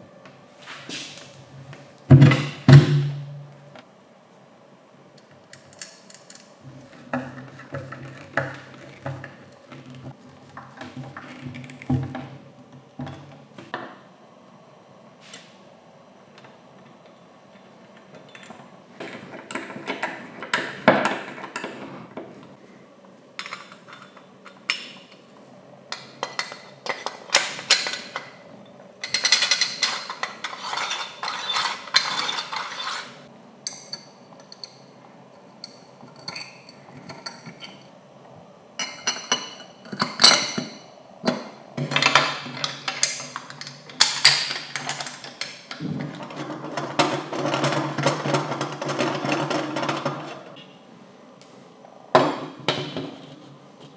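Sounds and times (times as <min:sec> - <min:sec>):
metal parts clicking and clinking: 0:23.4 - 0:25.2, 0:29.0 - 0:33.0, 0:41.9 - 0:50.4
metal parts rubbing and rattling: 0:29.0 - 0:33.3, 0:41.9 - 0:50.6.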